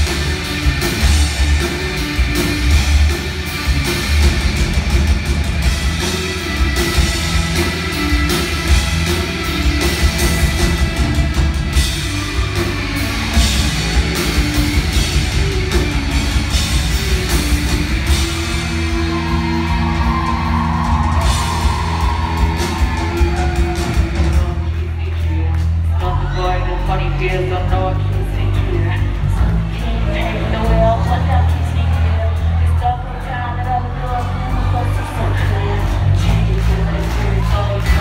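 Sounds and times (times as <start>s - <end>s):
rock band playing live: 0.0s - 38.0s.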